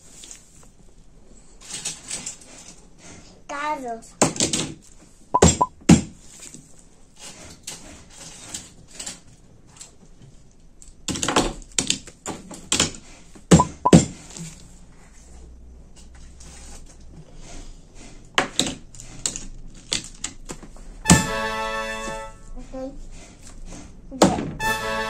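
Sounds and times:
toy cars clacking on tabletop: 0:04.2 - 0:04.9, 0:10.8 - 0:13.2, 0:18.4 - 0:20.8.

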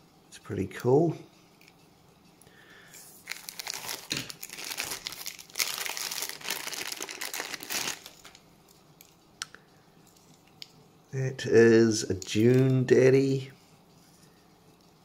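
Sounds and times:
plastic bag crinkling: 0:03.2 - 0:08.4.

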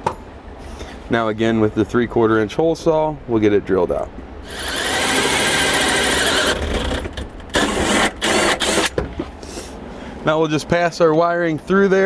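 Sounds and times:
power drill with hole saw: 0:04.4 - 0:09.0.

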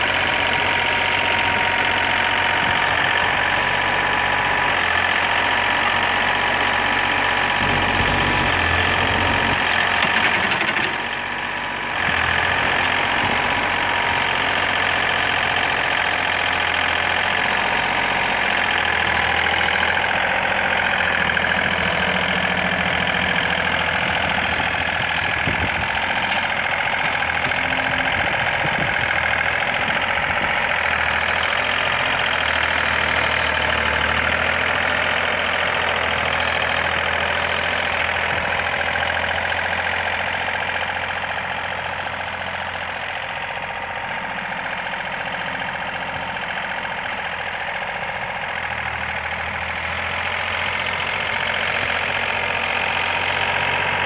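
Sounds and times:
loader bucket pushing snow: 0:00.0 - 0:54.0
tractor diesel engine running: 0:00.0 - 0:54.0.

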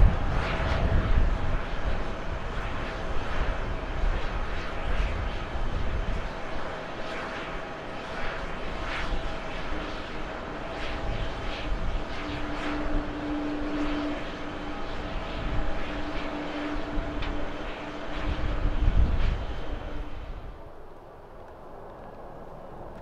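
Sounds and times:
jet engines rumbling: 0:00.0 - 0:23.0
high whine: 0:10.5 - 0:23.0.

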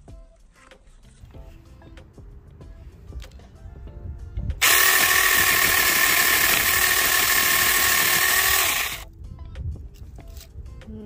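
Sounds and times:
mini chainsaw cutting: 0:04.6 - 0:09.0.

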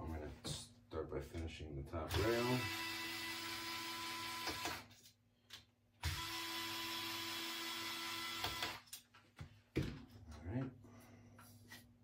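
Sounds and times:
electric power driver running: 0:02.1 - 0:04.9, 0:06.0 - 0:08.9.

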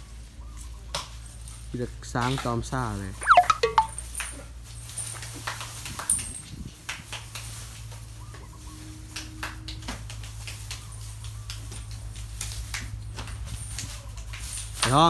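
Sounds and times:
chicken clucking: 0:03.2 - 0:03.9.

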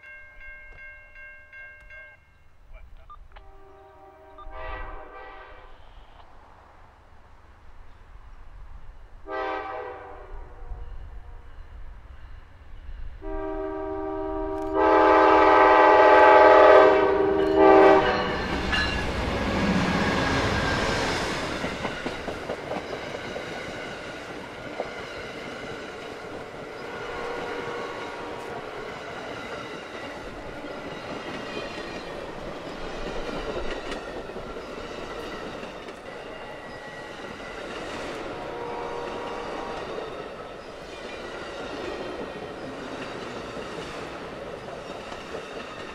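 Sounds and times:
train air horn: 0:03.4 - 0:06.2, 0:09.2 - 0:11.5, 0:13.2 - 0:21.0, 0:26.7 - 0:28.8, 0:38.1 - 0:40.0
clickety-clack of train wheels: 0:16.6 - 0:45.9
locomotive engine and wheel rush: 0:16.7 - 0:45.9.

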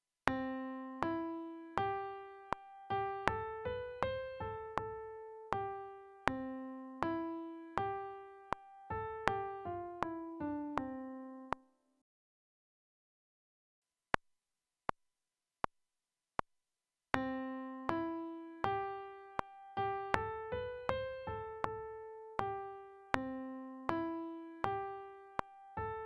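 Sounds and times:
piano playing simple melody: 0:00.3 - 0:11.8, 0:17.2 - 0:26.0
metronome clicks: 0:01.0 - 0:11.7, 0:17.2 - 0:26.0.

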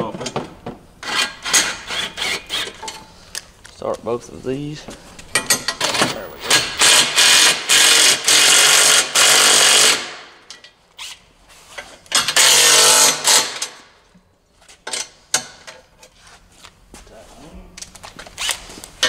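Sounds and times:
impact wrench hammering: 0:05.3 - 0:10.6.

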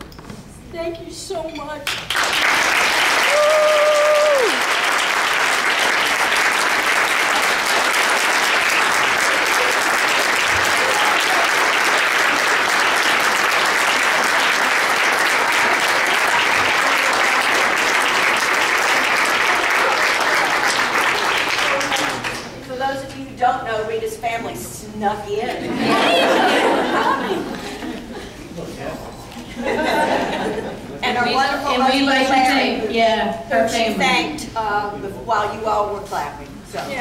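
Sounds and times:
audience applauding: 0:01.9 - 0:22.6
person cheering: 0:03.2 - 0:04.7, 0:10.6 - 0:11.7.

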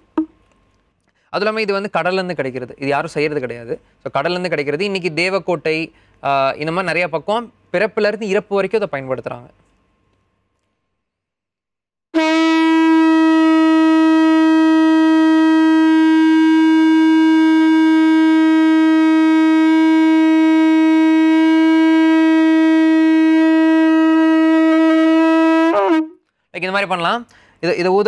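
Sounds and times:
conch shell blown: 0:12.2 - 0:26.2.

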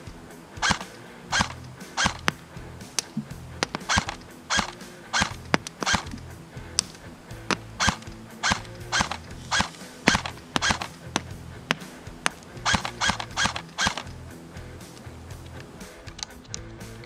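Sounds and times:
airsoft gun firing single shots: 0:00.6 - 0:02.4, 0:03.0 - 0:06.9, 0:07.5 - 0:14.1.

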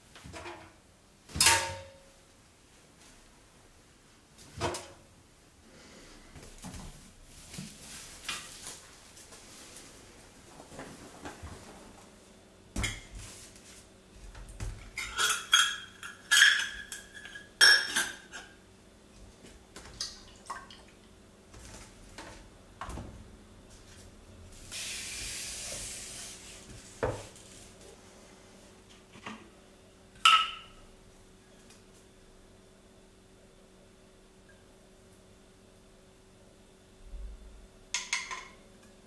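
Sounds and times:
glass bottles clinking: 0:15.0 - 0:18.4.

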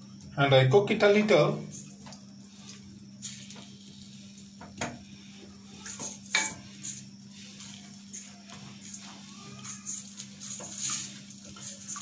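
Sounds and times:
steady low hum: 0:00.0 - 0:12.0
wooden spatula scraping metal pot: 0:05.9 - 0:12.0.

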